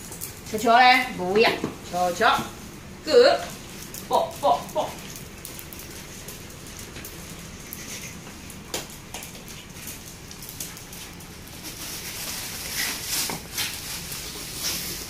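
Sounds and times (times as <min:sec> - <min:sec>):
dog claws clicking on tiles: 0:03.8 - 0:11.8.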